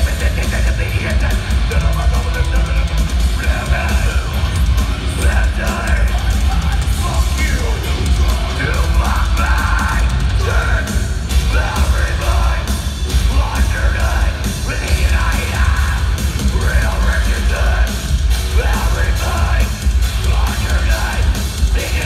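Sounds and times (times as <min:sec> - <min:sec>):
heavy metal band playing: 0:00.0 - 0:22.0
screamed vocals: 0:03.4 - 0:22.0.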